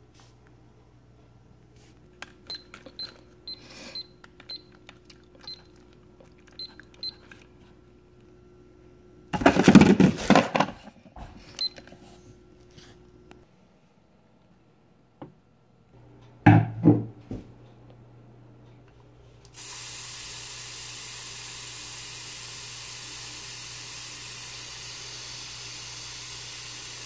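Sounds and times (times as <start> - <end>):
kitchen timer beeping: 2.5 - 4.8, 5.4 - 5.8, 6.6 - 7.2.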